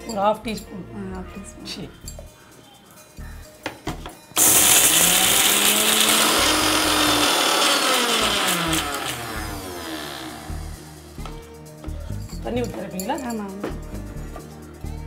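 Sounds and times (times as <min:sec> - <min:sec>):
mixer grinder motor running: 0:04.4 - 0:11.1.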